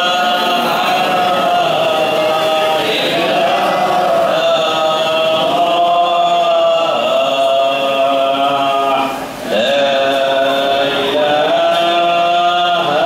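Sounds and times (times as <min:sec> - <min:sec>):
men chanting together: 0:00.0 - 0:13.0.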